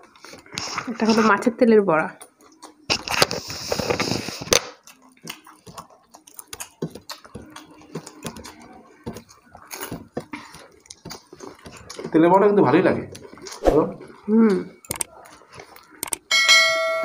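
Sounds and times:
chewing: 2.2 - 16.2
fingers tapping on plates: 6.5 - 12.2.

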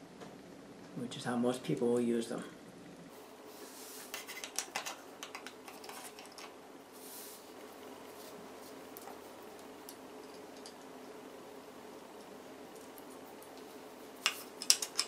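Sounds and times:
steady low hum: 0.0 - 15.0
small metal parts clinking: 14.2 - 15.0.

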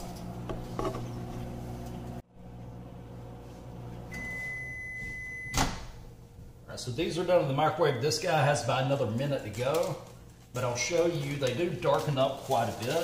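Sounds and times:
microwave oven humming: 0.0 - 11.0
microwave long beep: 4.0 - 5.8.

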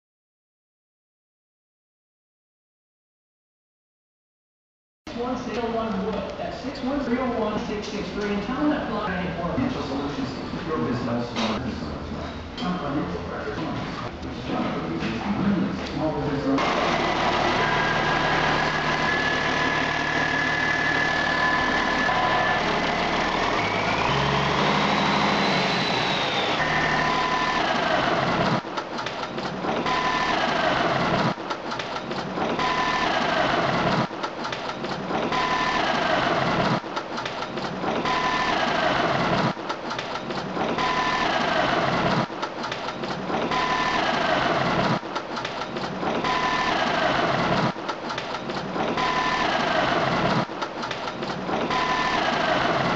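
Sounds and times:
diesel engine running: 16.6 - 28.6.

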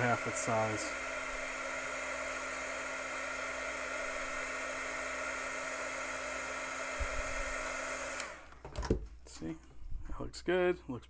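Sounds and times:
heat gun blowing air: 0.0 - 8.6.

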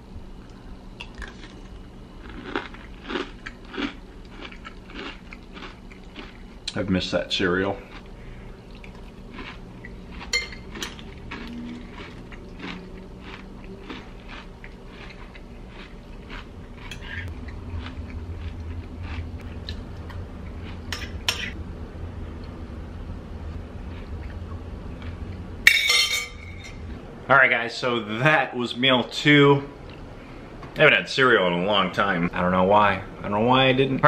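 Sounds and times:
spoon clinking on ceramic bowl: 10.3 - 11.0.

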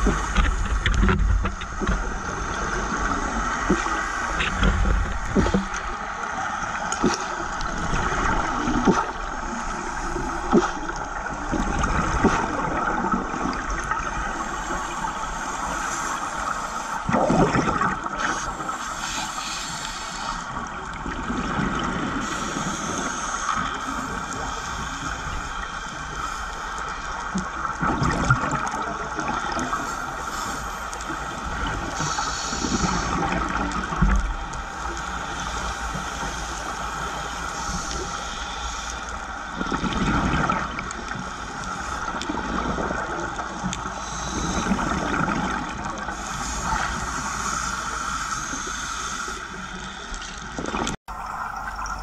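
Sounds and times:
scuba bubbles: 0.0 - 52.0
underwater hiss: 0.0 - 52.0.

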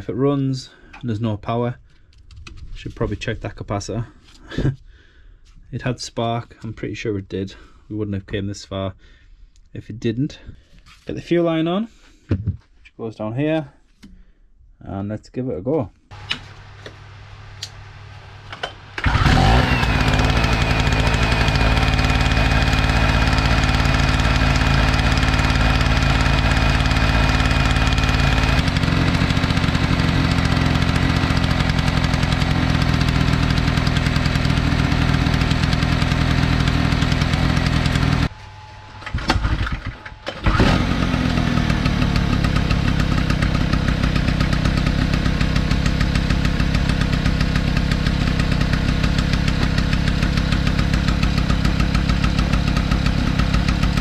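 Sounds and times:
generator engine running: 16.1 - 38.3, 39.0 - 54.0.

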